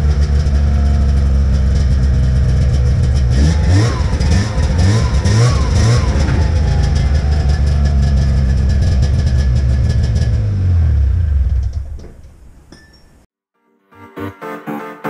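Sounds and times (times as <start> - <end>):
engine idling: 0.0 - 12.6.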